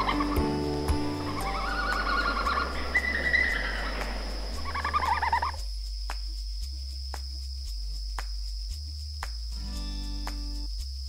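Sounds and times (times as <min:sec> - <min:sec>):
background music with low beat: 0:00.0 - 0:11.0
red panda squealing calls: 0:01.4 - 0:04.0, 0:04.6 - 0:05.6.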